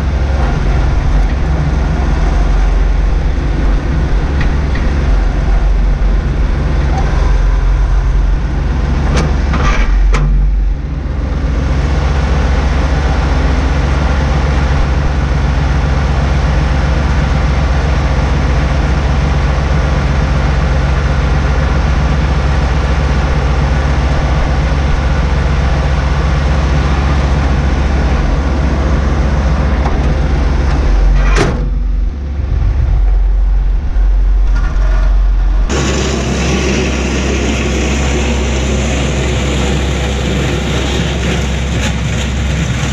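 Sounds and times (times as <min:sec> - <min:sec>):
diesel engine idling: 0:00.0 - 0:42.9.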